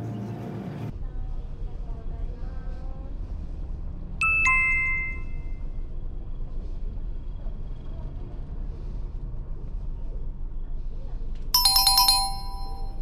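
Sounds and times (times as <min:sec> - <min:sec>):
two-note electronic chime: 0:04.2 - 0:05.5, 0:11.6 - 0:13.0.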